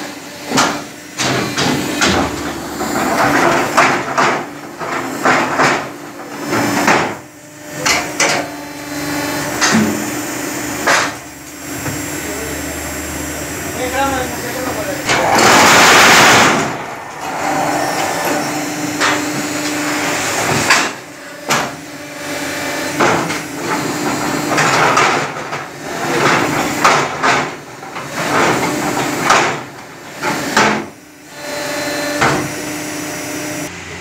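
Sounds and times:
metal clanking and knocks: 0:00.5 - 0:07.2, 0:15.1 - 0:21.7
machine motor hum: 0:00.7 - 0:24.6.

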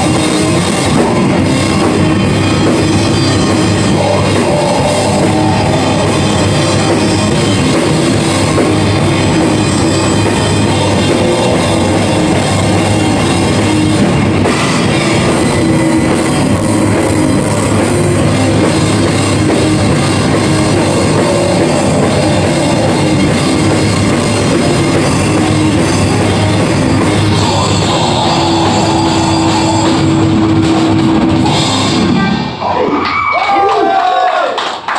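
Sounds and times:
pounding drum kit with cymbals: 0:00.0 - 0:32.6
distorted electric guitars: 0:00.0 - 0:33.4
heavy metal band playing: 0:00.0 - 0:33.4.

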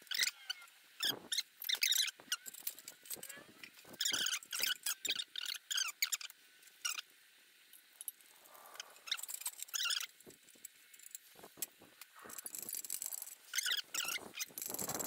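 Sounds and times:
short high-pitched squeaks: 0:12.2 - 0:15.0.

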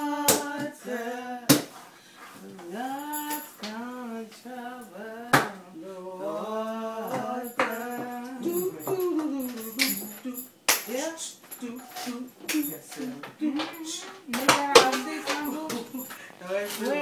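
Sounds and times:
person singing long notes: 0:11.1 - 0:17.0.

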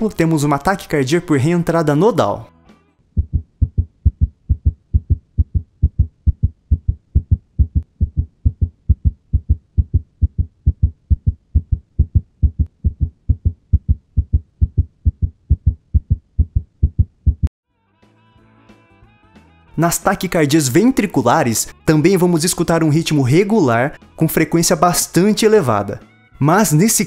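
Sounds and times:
rapid regular heartbeat: 0:03.1 - 0:17.5.

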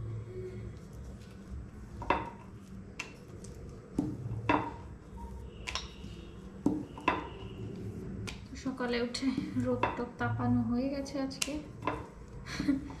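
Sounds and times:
steady low hum: 0:00.0 - 0:13.0
rolling pin knocking on wooden board: 0:06.6 - 0:07.3.

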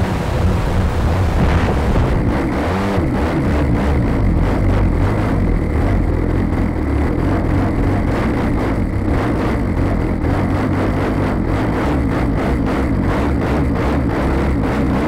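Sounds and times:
wind rushing over microphone: 0:00.0 - 0:10.5.

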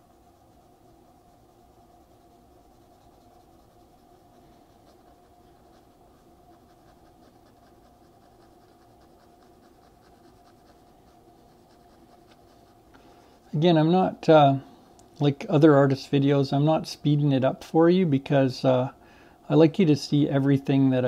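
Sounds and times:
pencil scratching on paper: 0:00.0 - 0:13.7
faint steady hum: 0:00.0 - 0:21.0.

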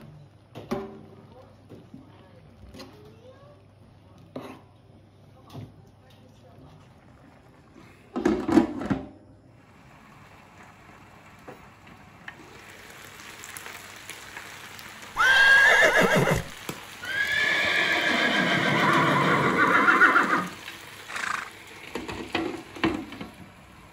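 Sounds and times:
horse whinnying: 0:15.2 - 0:21.6.

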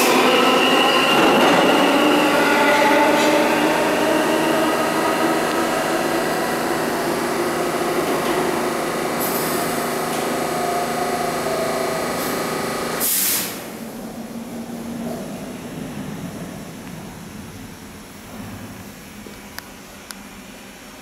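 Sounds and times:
wheels rumbling on rail: 0:00.0 - 0:19.5
subway train motors whining: 0:00.0 - 0:21.0
air brake hiss: 0:13.0 - 0:13.8.

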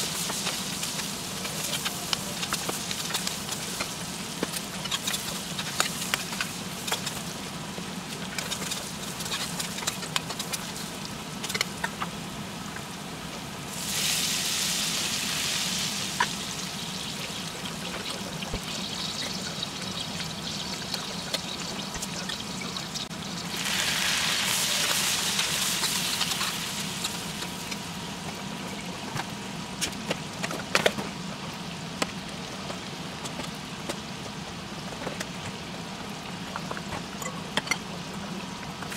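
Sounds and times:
food sizzling in a pan: 0:00.0 - 0:13.0, 0:13.6 - 0:28.7.

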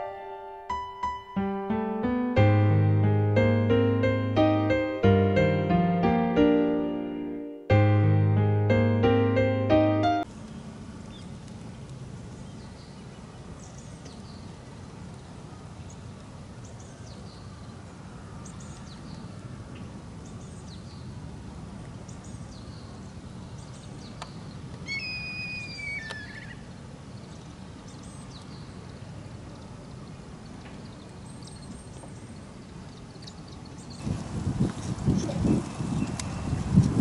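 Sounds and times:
faint bird chirps: 0:24.2 - 0:26.6
drawn-out bird call: 0:24.8 - 0:26.7
low wind rumble: 0:34.0 - 0:37.0.

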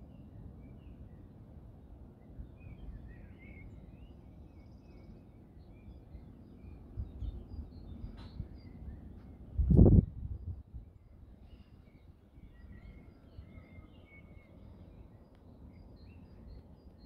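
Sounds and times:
songbirds chirping: 0:00.0 - 0:17.0
click: 0:15.3 - 0:15.5.

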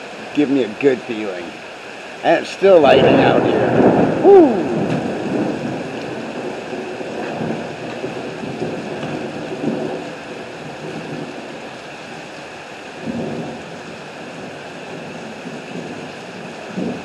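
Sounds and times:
heavy rain pouring: 0:00.0 - 0:17.0
thunder rumble: 0:02.7 - 0:17.0.

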